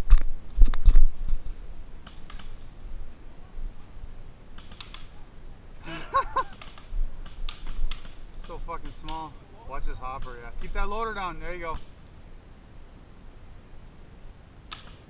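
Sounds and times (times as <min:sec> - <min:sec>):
paintball markers firing: 0:06.5 - 0:09.3.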